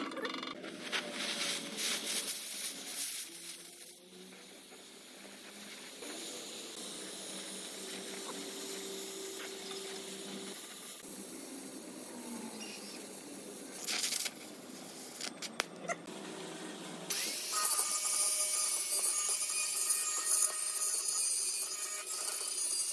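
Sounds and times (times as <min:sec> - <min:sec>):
welding arc crackling: 0:00.5 - 0:15.7.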